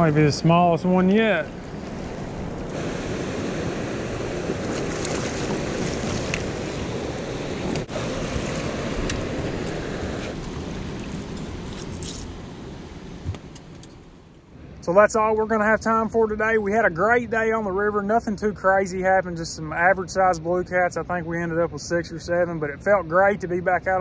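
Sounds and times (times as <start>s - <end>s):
churning river water: 0.0s - 14.1s
wind rushing: 0.8s - 11.7s.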